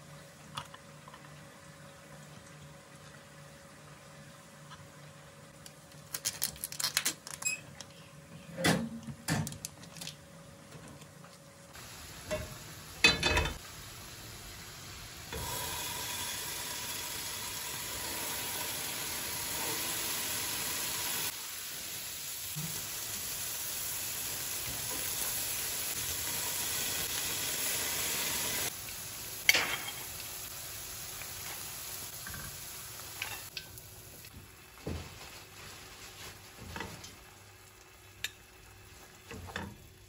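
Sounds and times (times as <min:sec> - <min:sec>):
food sizzling in oil: 0:11.8 - 0:40.0.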